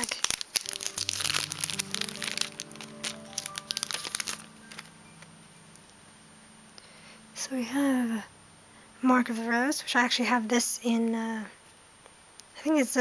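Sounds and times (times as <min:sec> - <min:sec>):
foil wrapper crinkling and tearing: 0:00.0 - 0:05.0
held musical notes: 0:00.5 - 0:09.6.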